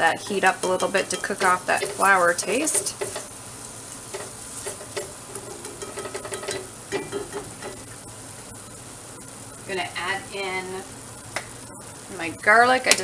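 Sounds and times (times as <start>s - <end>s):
faint sizzle: 0.0s - 13.0s
whisk scraping pot: 0.1s - 3.4s.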